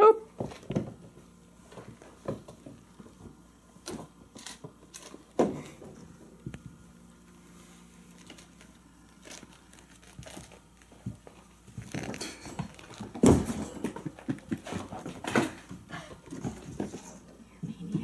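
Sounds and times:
kittens scuffling: 0.4 - 18.0.

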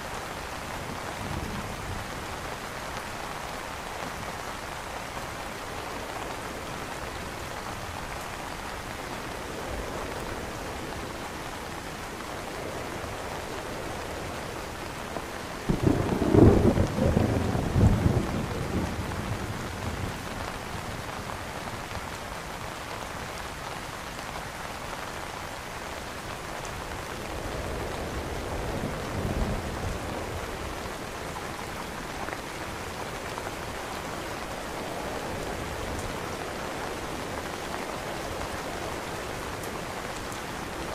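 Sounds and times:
rain on an umbrella: 0.0 - 40.9
thunder rumbling: 15.6 - 21.1.

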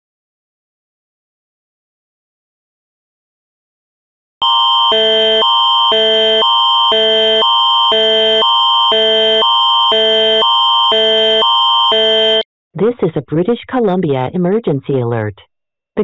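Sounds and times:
alert tone alternating chords: 4.4 - 12.4
constant high tone: 4.4 - 12.4.

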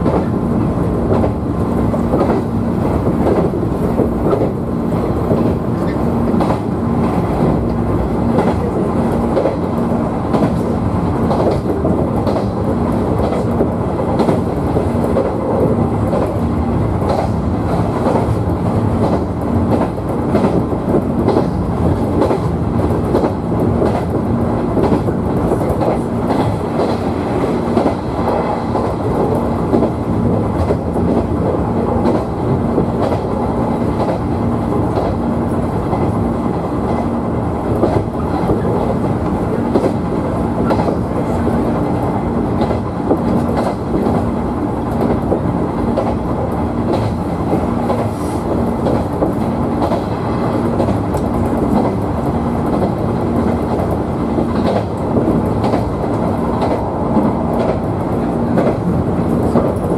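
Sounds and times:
train rumble with low hum: 0.0 - 59.9
wheels clicking over rail joints: 50.8 - 57.9.

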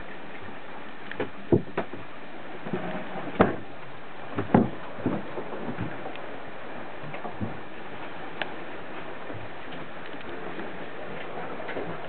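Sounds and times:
sharp knocks and clunks: 1.2 - 2.1, 2.7 - 3.7, 4.3 - 6.0.

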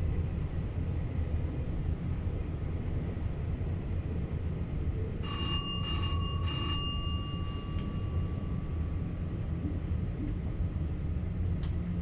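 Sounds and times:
low train rumble: 0.0 - 12.0
bell ringing: 5.2 - 9.1.

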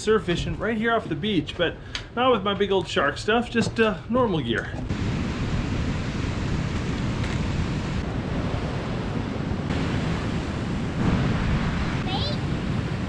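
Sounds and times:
wind on microphone: 4.8 - 13.0
ocean surf washing on beach: 4.9 - 13.0.

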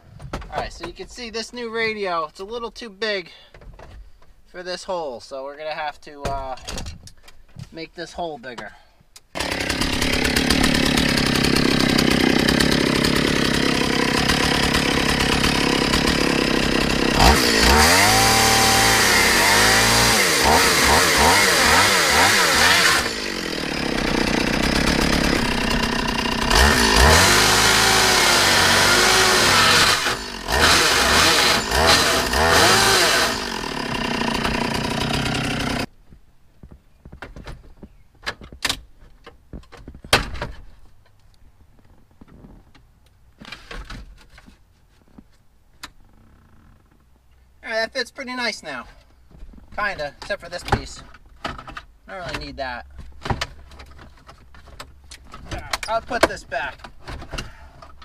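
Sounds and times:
chainsaw cutting plastic: 9.3 - 35.9.

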